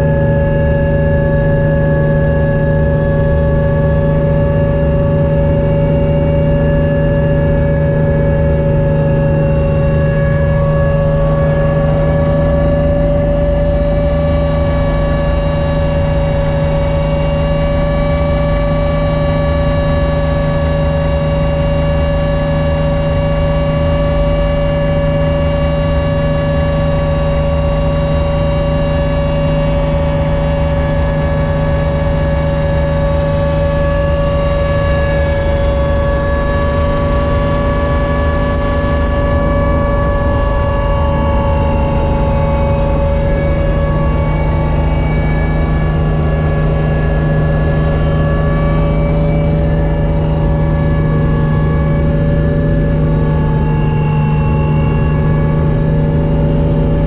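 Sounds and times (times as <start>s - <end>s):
helicopter cabin drone: 0.0s - 57.0s
steady whine: 0.0s - 57.0s.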